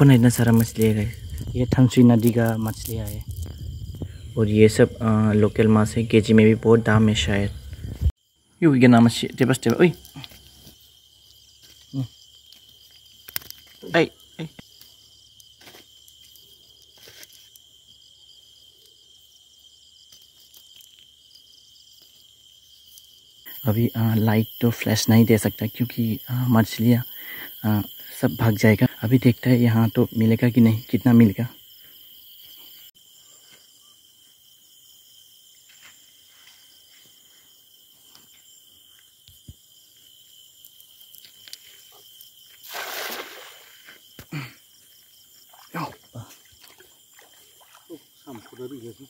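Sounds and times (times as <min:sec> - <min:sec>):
crickets chirring: 0:00.0 - 0:49.0
night insects trilling: 0:00.0 - 0:49.0
clicks and rustles: 0:12.5 - 0:13.8.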